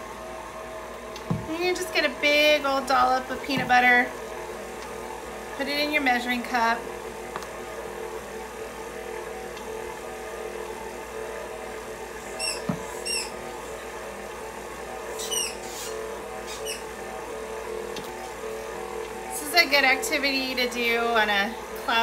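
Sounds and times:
short high squeaks: 12.4 - 13.3.

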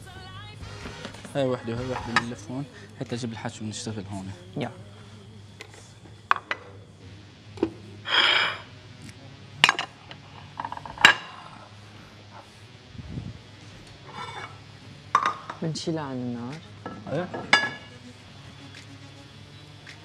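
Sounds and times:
utensils and plates clinking: 1.0 - 2.7, 8.1 - 8.7, 9.6 - 11.6, 14.0 - 15.7, 16.8 - 18.0.

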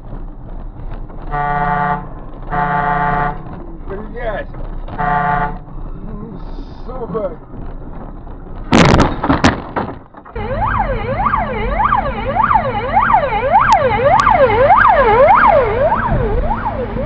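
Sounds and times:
car crash impact: 8.0 - 10.4
police siren yelp: 10.4 - 17.0.

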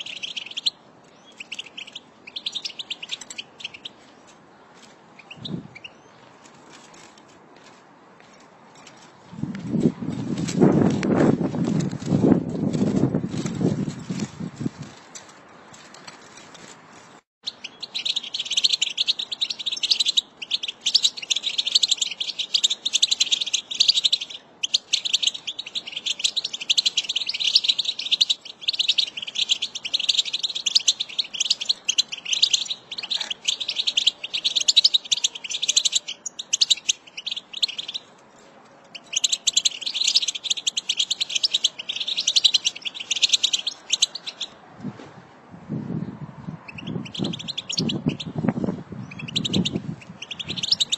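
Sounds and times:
finch twittering song: 0.0 - 4.3, 5.1 - 6.3, 17.4 - 38.1, 38.9 - 44.6, 46.5 - 50.9.

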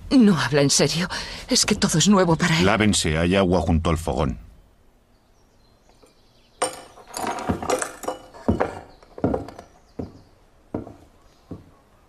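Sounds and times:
footsteps on wooden boards: 1.5 - 2.3, 6.7 - 11.9
clinking and knocking: 6.6 - 11.6.

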